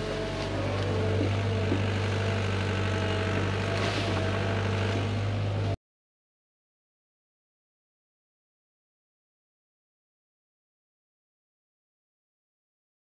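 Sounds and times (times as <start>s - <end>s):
excavator diesel engine droning: 0.0s - 5.8s.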